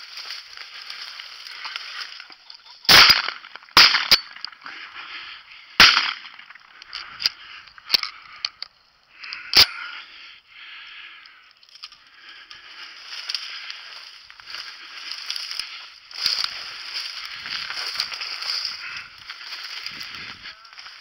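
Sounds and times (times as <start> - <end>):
shotgun shots: 2.9 - 4.3, 5.8 - 6.3
shells loaded into shotgun clicks: 2.9 - 4.6, 5.8 - 9.8.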